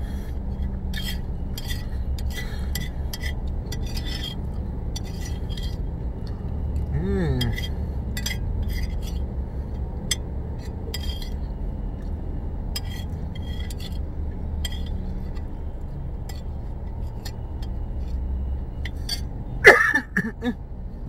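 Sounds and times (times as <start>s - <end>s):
low hum inside a car: 0.0s - 21.0s
spoon scraping a plate: 0.9s - 4.4s, 5.0s - 5.8s, 10.6s - 11.4s, 12.8s - 14.0s, 14.6s - 15.0s.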